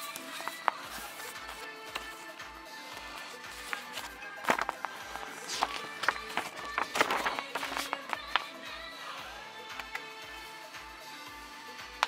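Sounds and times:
music with sustained tones: 0:00.0 - 0:12.0.

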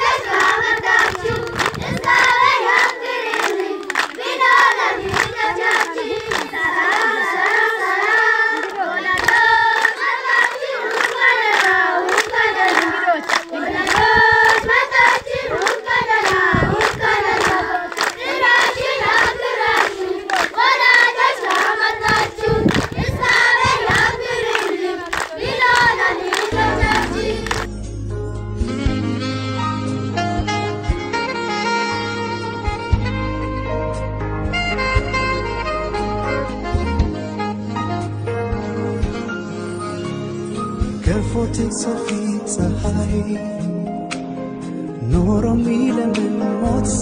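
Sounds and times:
children singing together: 0:00.0 - 0:27.7
hands clapping in time: 0:00.0 - 0:27.8
saxophone music: 0:26.4 - 0:27.8, 0:28.6 - 0:40.1.

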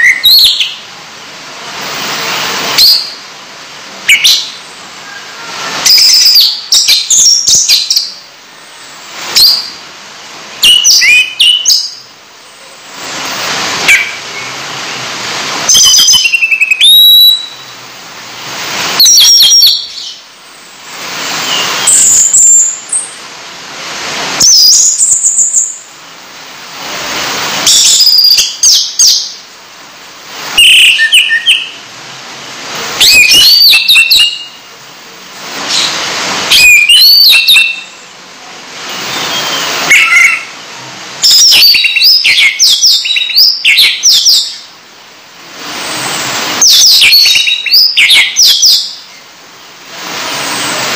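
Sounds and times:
bird chirping and warbling: 0:00.0 - 0:00.8, 0:02.2 - 0:03.2, 0:04.1 - 0:08.2, 0:08.8 - 0:09.9, 0:10.6 - 0:12.1, 0:13.4 - 0:14.6, 0:15.6 - 0:17.8, 0:18.8 - 0:20.3, 0:21.2 - 0:23.2, 0:24.4 - 0:25.9, 0:27.6 - 0:29.4, 0:30.5 - 0:31.9, 0:33.0 - 0:34.7, 0:35.6 - 0:38.0, 0:38.9 - 0:40.6, 0:41.2 - 0:44.7, 0:46.1 - 0:49.3.

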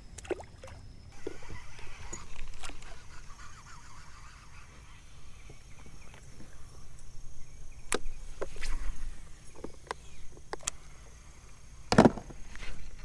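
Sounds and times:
fishing rod and reel clicks: 0:01.2 - 0:07.1, 0:07.7 - 0:11.0.

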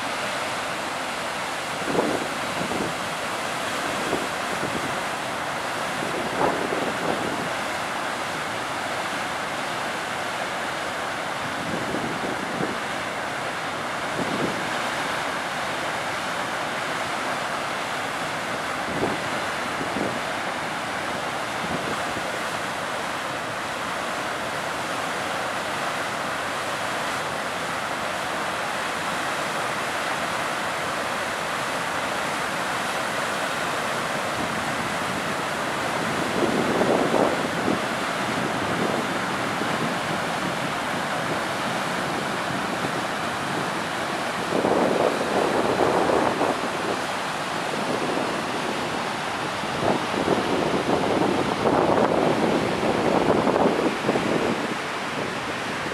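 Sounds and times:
waterfall rushing: 0:00.0 - 0:55.9
wind bumps on microphone: 0:49.7 - 0:55.9.

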